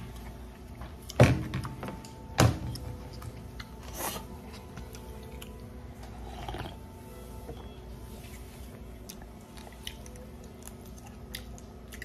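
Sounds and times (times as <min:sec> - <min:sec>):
person sipping from a bowl: 0:06.1 - 0:06.9.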